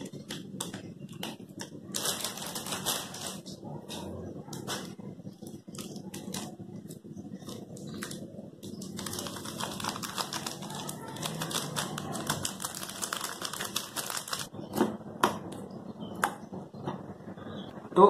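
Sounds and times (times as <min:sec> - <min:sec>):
foil sachet crinkling: 0:00.0 - 0:03.6, 0:04.6 - 0:14.5.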